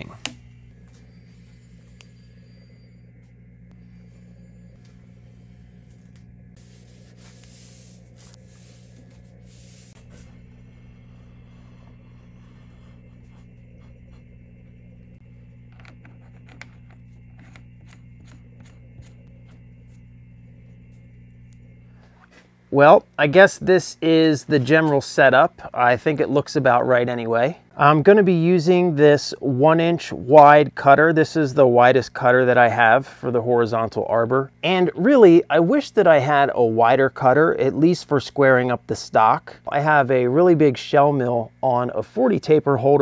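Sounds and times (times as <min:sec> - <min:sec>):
steady low drone: 0:00.0 - 0:24.8
metal rubbing and sliding: 0:03.9 - 0:20.0.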